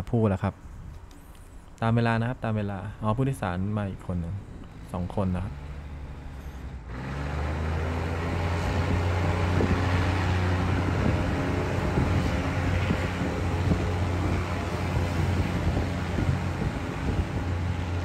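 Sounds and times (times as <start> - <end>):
diesel train engine running: 4.4 - 18.0.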